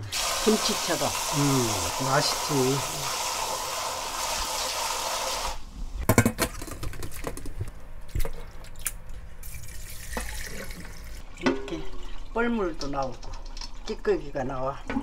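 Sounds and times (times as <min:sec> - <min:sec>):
rinse water pouring: 0:00.0 - 0:05.6, 0:09.4 - 0:15.0.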